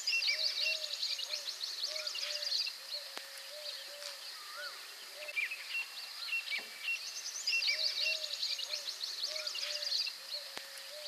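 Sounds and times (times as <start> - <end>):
birds twittering and chirping: 0.0 - 11.0.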